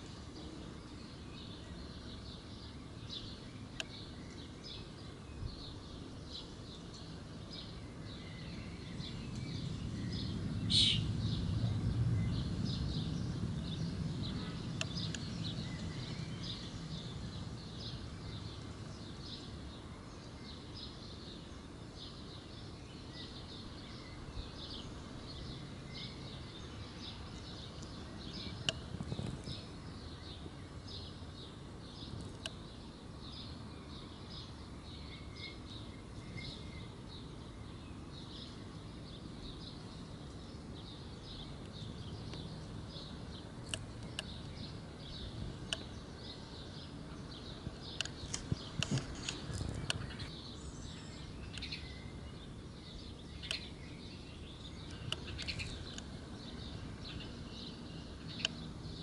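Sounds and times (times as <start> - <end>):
low rumble: 9.0 - 18.1.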